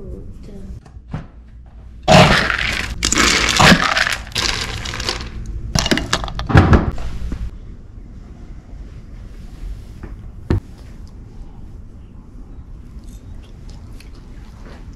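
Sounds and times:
dry kibble rattling and pouring: 2.4 - 6.4.

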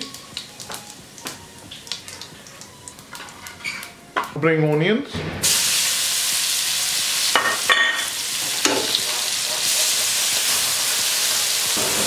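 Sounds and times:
onions sizzling in oil: 0.0 - 4.2, 5.4 - 12.0.

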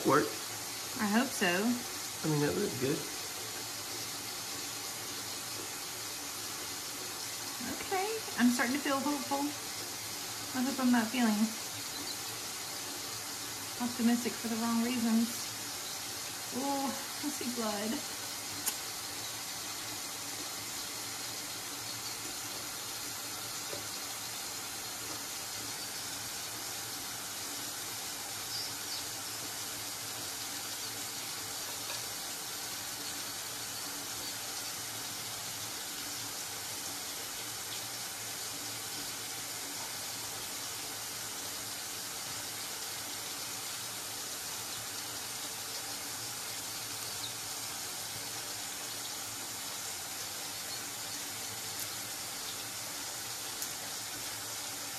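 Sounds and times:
tap water running into sink: 17.8 - 54.9.

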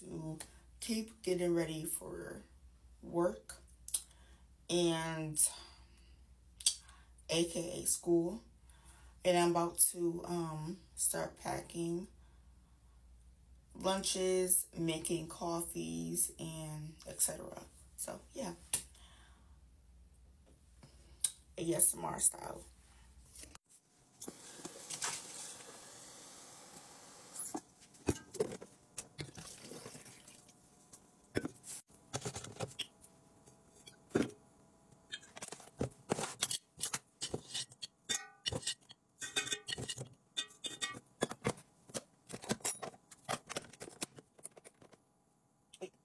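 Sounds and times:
steady hiss: 24.3 - 27.4
kitchenware clicks and clinks: 37.2 - 41.5.

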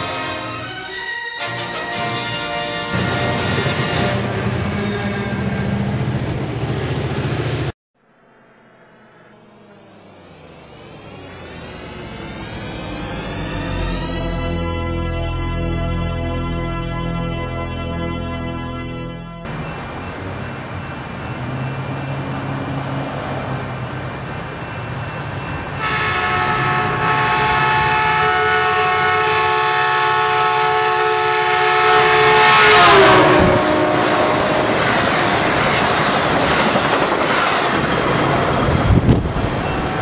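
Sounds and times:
train air horn chord: 0.0 - 5.8, 12.6 - 19.6, 25.8 - 35.3
train rushing and clattering past: 0.0 - 7.7, 9.5 - 27.4, 31.9 - 40.0.

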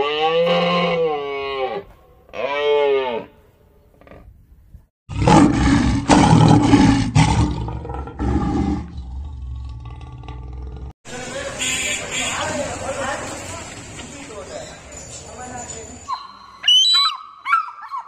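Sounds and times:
lion roaring: 5.1 - 10.9.

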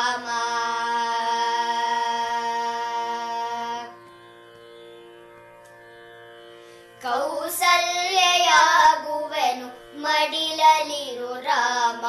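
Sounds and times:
person singing devotional song: 0.0 - 4.1, 6.9 - 12.0
faint steady accompaniment tones: 0.0 - 12.0.

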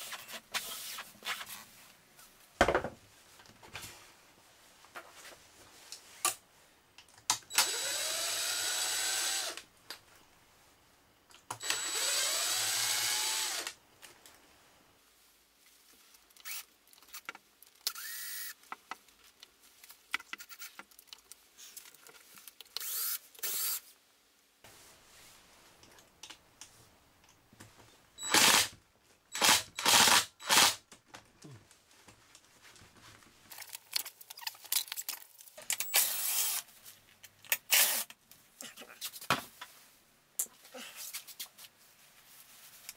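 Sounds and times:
cordless impact driver: 7.5 - 9.6, 11.6 - 13.8, 17.9 - 18.6, 22.8 - 23.8, 28.2 - 28.7, 29.3 - 30.8, 35.8 - 36.6
small clicks and handling noise: 15.6 - 23.6, 30.9 - 38.5.

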